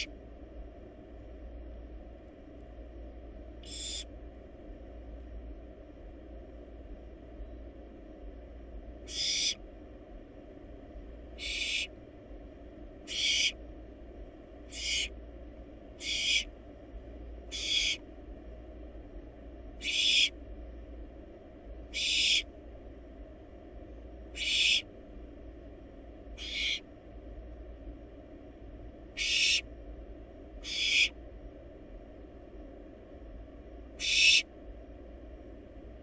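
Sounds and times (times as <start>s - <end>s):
owl chick hissing screech calls: 3.6s - 4.1s, 9.1s - 9.6s, 11.4s - 11.9s, 13.0s - 13.6s, 14.7s - 15.2s, 16.0s - 16.5s, 17.5s - 18.0s, 19.8s - 20.4s, 21.9s - 22.5s, 24.3s - 24.9s, 26.4s - 26.8s, 29.2s - 29.7s, 30.6s - 31.2s, 34.0s - 34.5s.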